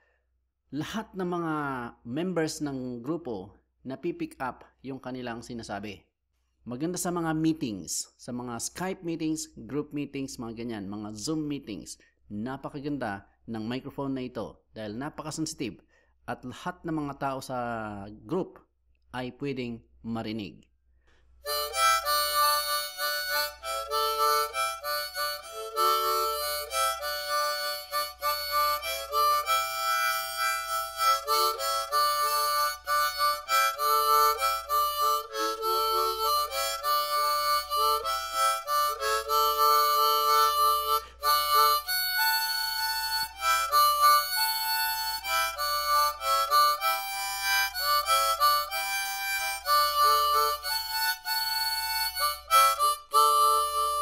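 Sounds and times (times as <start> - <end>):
harmonica playing: 21.4 - 54.0.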